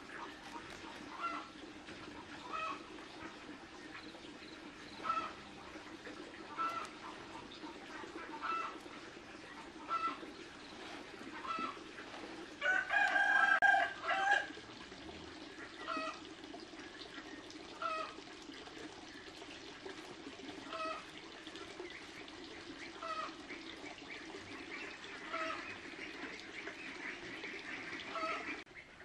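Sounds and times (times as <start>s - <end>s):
chickens calling: 0.0s - 14.6s, 15.5s - 16.3s, 17.0s - 18.2s, 20.6s - 29.0s
rooster crowing: 12.6s - 14.5s.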